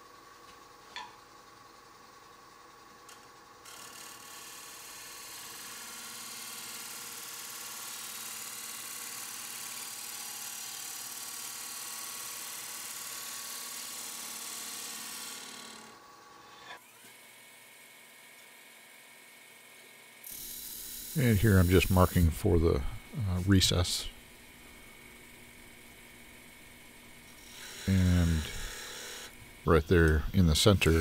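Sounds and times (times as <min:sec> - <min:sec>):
wood lathe running: 0:03.1 - 0:16.0, 0:20.2 - 0:31.0
gouge cutting wood on a lathe: 0:03.6 - 0:15.9, 0:20.3 - 0:22.2, 0:26.4 - 0:31.0.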